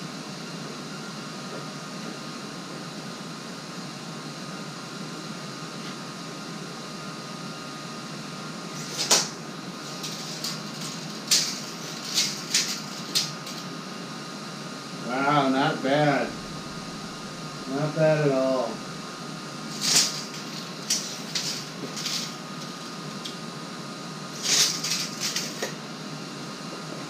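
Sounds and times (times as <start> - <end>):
tape measure clicking and rattling: 8.7 - 13.7, 19.7 - 23.4, 24.4 - 25.8.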